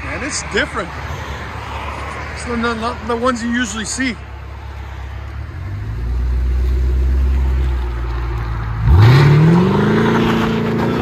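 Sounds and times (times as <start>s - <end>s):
car exhaust revving while accelerating: 8.8s - 11.0s.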